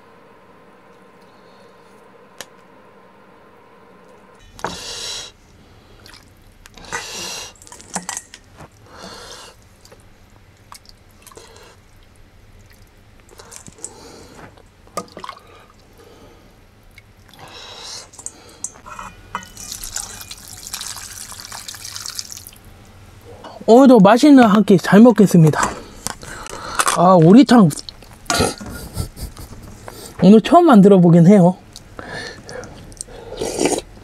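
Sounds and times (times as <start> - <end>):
broth dripping into bowl: 15.0 - 23.0
ladle scraping in metal pot: 18.2 - 20.3
broth pouring into bowl: 19.6 - 22.6.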